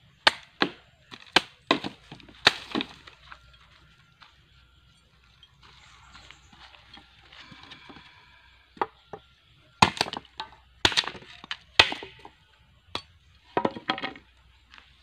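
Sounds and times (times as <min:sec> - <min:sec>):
blade chopping wood: 0:00.2 - 0:03.1, 0:09.8 - 0:12.3.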